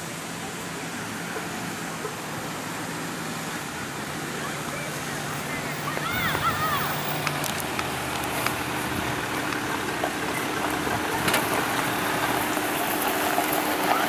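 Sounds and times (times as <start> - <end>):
diesel truck engine humming: 0.0 - 14.0.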